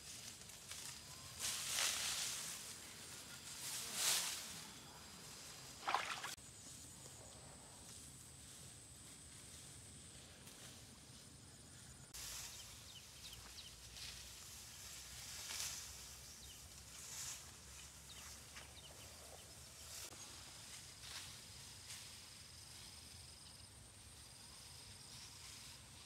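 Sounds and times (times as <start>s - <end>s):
outdoor rustling and swishes: 5.3s - 6.8s.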